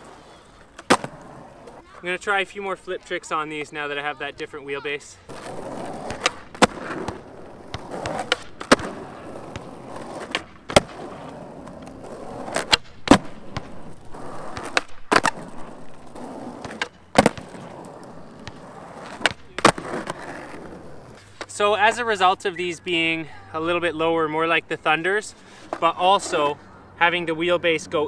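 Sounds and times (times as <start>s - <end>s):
skateboard wheels rumbling on asphalt: 0.0s - 2.6s, 4.9s - 22.4s
skateboard tail popping and landing: 0.8s - 1.8s, 5.3s - 21.5s.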